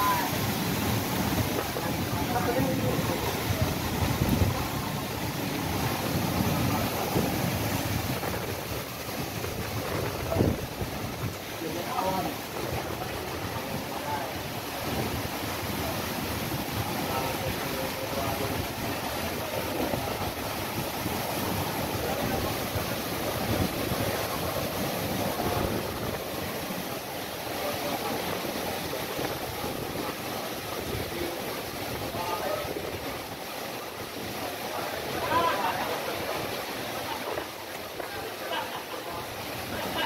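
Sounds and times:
wind blowing on microphone: 0.0s - 14.1s
heavy rain: 0.0s - 40.0s
waves washing against quay wall: 0.0s - 40.0s.

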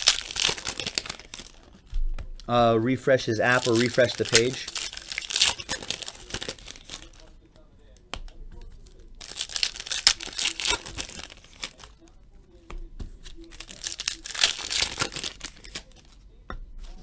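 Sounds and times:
foil wrapper tearing and crinkling: 0.0s - 1.9s, 3.4s - 7.3s, 8.8s - 12.0s, 13.4s - 16.1s.

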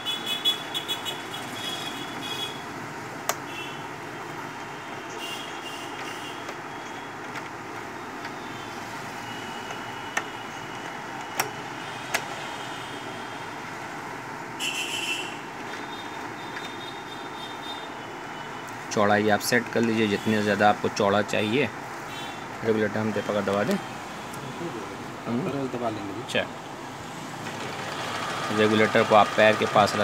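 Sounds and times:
steady background noise: 0.0s - 30.0s
sewing machine stitching: 27.4s - 30.0s.

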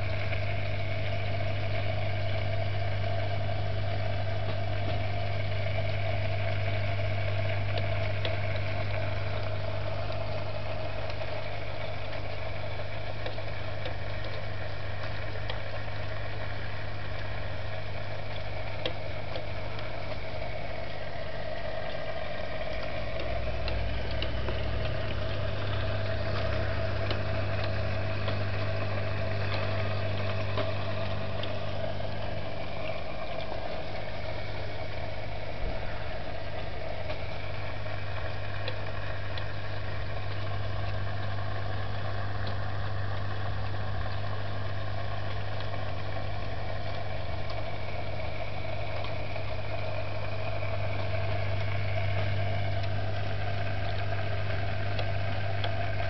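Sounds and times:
aquarium pump humming: 0.0s - 56.0s
small clicks: 21.6s - 34.3s.

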